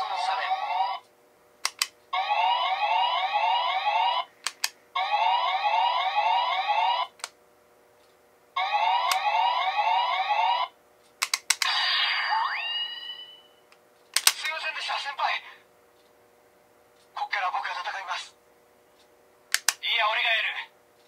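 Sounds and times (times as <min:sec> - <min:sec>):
toy electronic police siren: 0:00.0 - 0:01.0, 0:02.2 - 0:04.3, 0:05.0 - 0:07.1, 0:08.6 - 0:10.8, 0:12.2 - 0:13.5
toy button clicks: 0:01.6 - 0:01.9, 0:04.4 - 0:04.8, 0:11.2 - 0:11.7, 0:19.5 - 0:19.8
electronic rising tone effect: 0:11.7 - 0:13.6.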